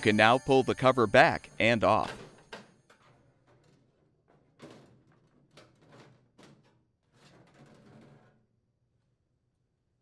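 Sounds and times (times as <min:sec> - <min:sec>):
sheet metal cover scraping: 0:02.0 - 0:08.5.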